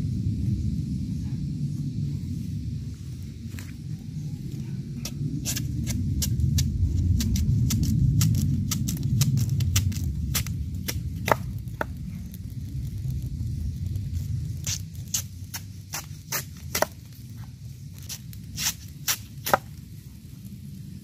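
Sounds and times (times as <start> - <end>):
steady low rumble: 0.0 - 21.0
machete chopping bamboo: 7.3 - 12.0, 14.7 - 17.0, 18.0 - 19.8.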